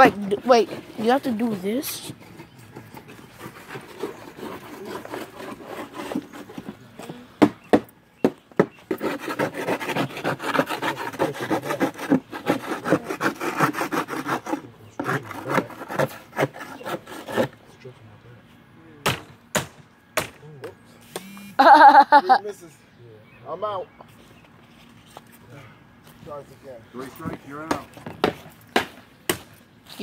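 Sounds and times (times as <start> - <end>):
siding being cut with rasping strokes: 0.0 - 17.9, 19.0 - 21.5, 26.0 - 29.6.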